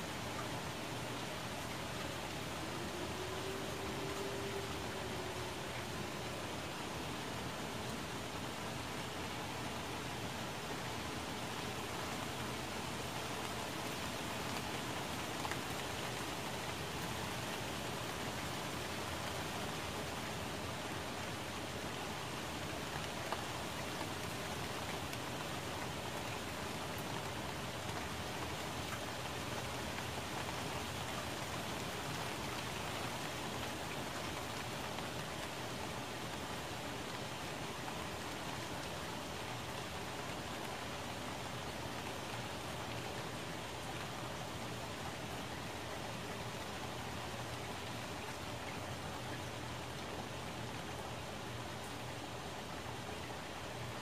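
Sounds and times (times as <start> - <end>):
rain on leaves: 0.0 - 54.0.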